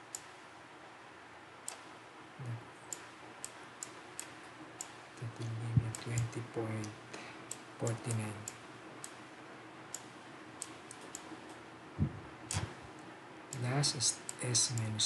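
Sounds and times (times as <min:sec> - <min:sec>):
computer mouse clicking: 0:00.1 - 0:00.4, 0:01.6 - 0:02.0, 0:02.9 - 0:09.3, 0:09.9 - 0:11.6
soft murmured voice: 0:02.4 - 0:02.7, 0:05.2 - 0:07.0.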